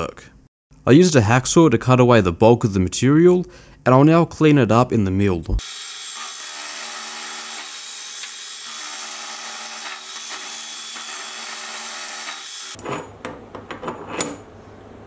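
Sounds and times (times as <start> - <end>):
milling machine cutting metal: 5.6 - 12.8.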